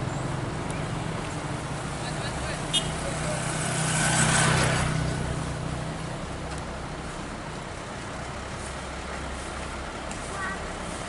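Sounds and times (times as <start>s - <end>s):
motorcycle passing: 0.1s - 6.0s
truck engines idling: 4.5s - 11.0s.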